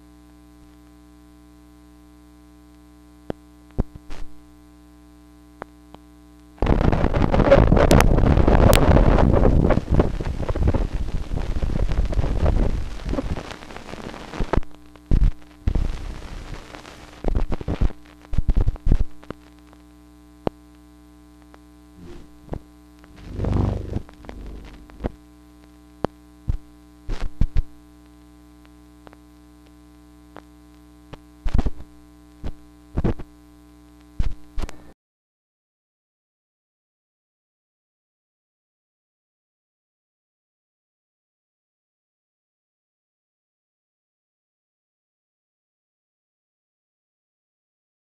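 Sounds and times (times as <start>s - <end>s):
steady hum: 0.0s - 35.0s
sharp clicks and pops: 22.5s - 25.2s
short swell of noise: 23.2s - 25.0s
dense rushing noise: 23.2s - 25.1s.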